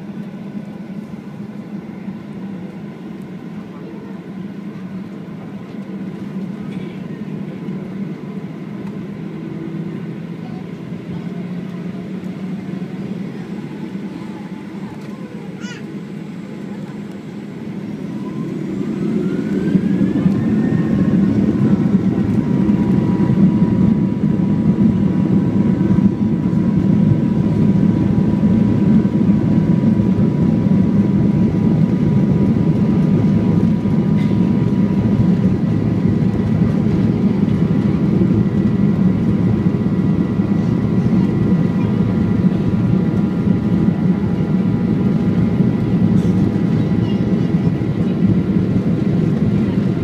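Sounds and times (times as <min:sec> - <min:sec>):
jet engines spooling up: 0:10.8 - 0:50.0.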